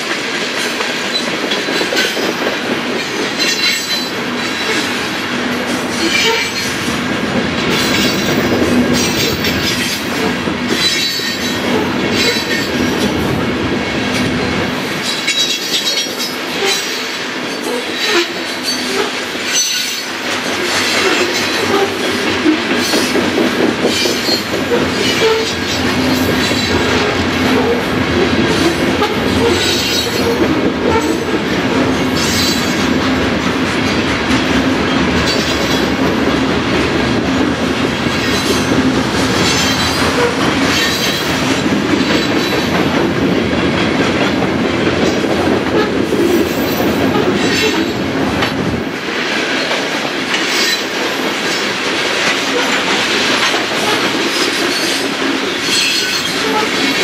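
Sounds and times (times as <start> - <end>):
train wheels rumbling on rails: 0.0 - 57.0
wheel squeals: 6.0 - 6.7, 55.6 - 56.8.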